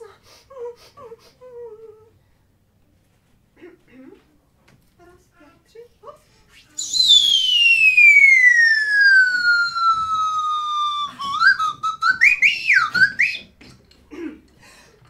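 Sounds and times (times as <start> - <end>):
whistle gliding and warbling: 6.8 - 13.5.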